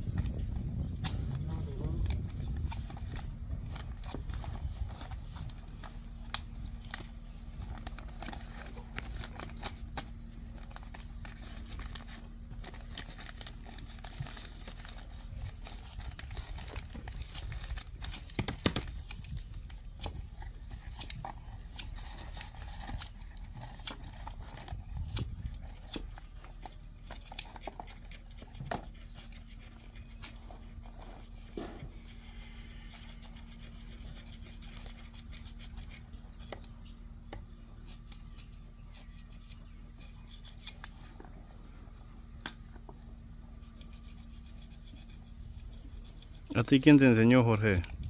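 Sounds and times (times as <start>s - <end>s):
steady low rumble: 0.0s - 47.2s
paper crinkling: 0.0s - 48.0s.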